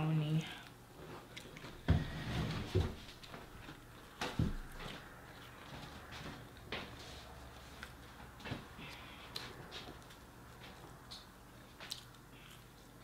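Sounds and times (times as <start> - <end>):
soft knocks and clicks of food handling: 1.5 - 7.0.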